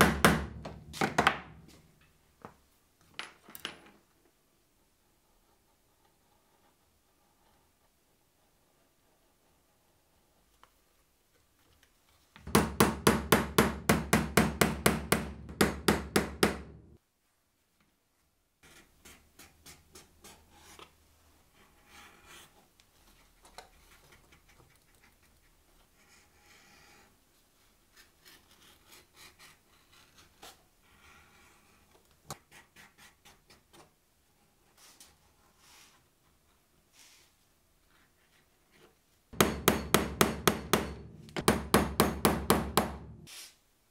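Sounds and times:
loud rapid knocks: 0:39.4 - 0:43.1.

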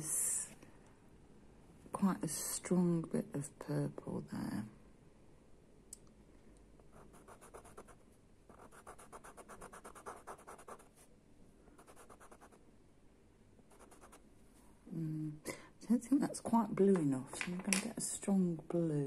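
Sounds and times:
pencil scratching on paper: 0:07.0 - 0:11.0, 0:11.8 - 0:12.6, 0:13.7 - 0:14.2.

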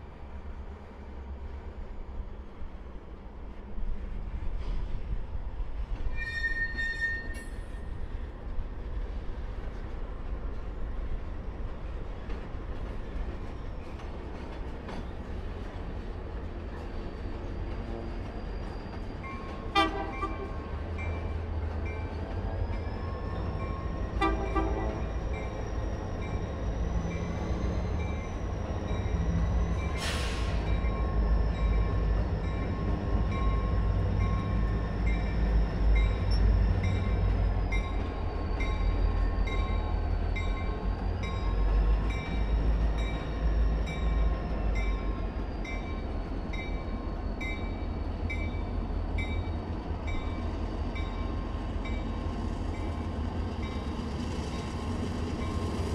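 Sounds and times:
diesel locomotive engine rumble: 0:00.0 - 0:55.9
short air hiss: 0:30.0 - 0:30.6.

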